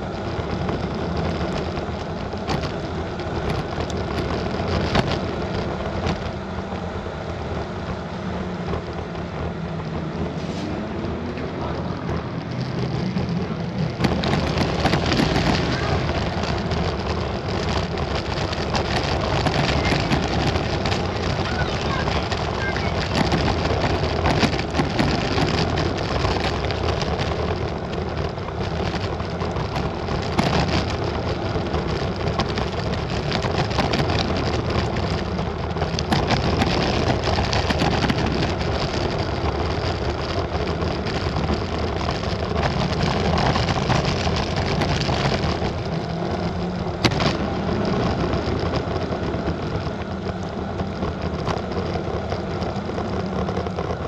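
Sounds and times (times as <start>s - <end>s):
tyre noise on road: 0.0s - 54.0s
wind on microphone: 0.0s - 54.0s.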